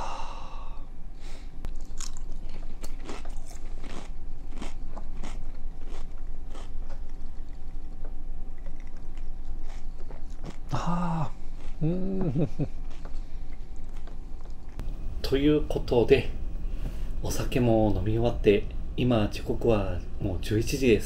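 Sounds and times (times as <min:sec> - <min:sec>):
steady low hum: 0:00.0 - 0:21.0
crunchy snack being chewed: 0:01.7 - 0:11.9, 0:12.6 - 0:14.8.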